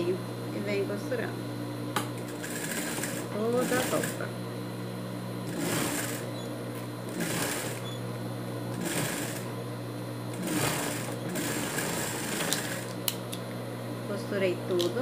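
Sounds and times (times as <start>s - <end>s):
steady hum: 0.0s - 15.0s
sewing machine stitching: 2.3s - 4.2s, 5.5s - 6.3s, 7.1s - 7.9s, 8.8s - 9.4s, 10.4s - 12.9s.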